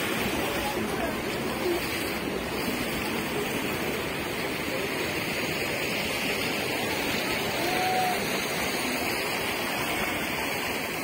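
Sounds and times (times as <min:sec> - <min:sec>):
running water rushing: 0:00.0 - 0:11.0.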